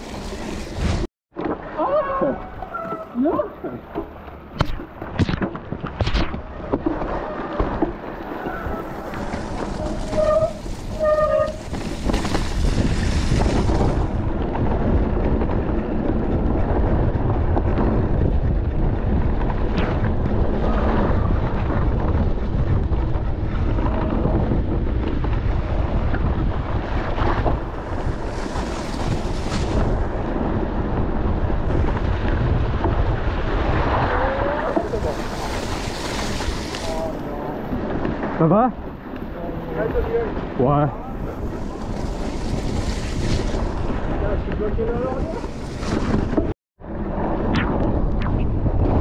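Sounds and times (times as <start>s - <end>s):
wind buffeting microphone: 0.0s - 49.0s
short squeaks: 2.0s - 3.4s, 9.8s - 11.8s.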